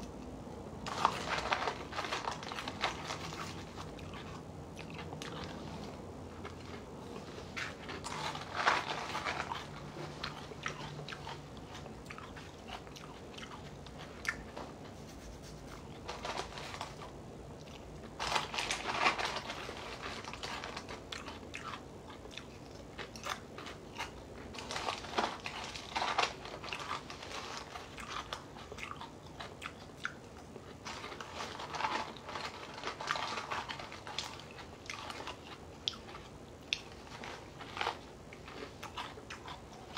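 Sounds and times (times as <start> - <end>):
person chewing crunchy cereal: 0.8 - 14.8, 15.6 - 39.9.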